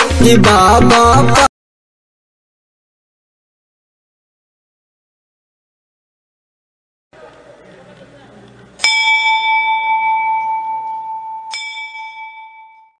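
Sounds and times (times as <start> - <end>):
faint voices: 7.2 - 8.8
bell ringing: 8.8 - 13.0.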